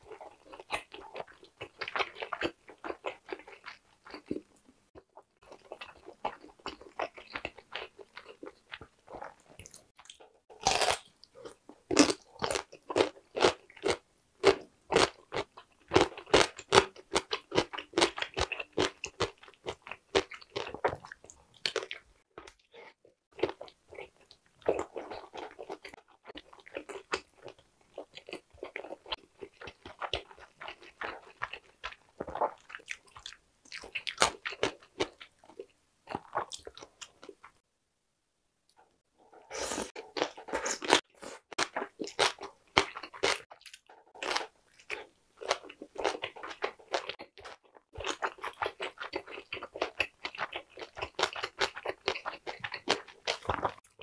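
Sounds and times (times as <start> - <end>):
chewing and biting sausage: 0.0 - 37.4, 39.3 - 54.0.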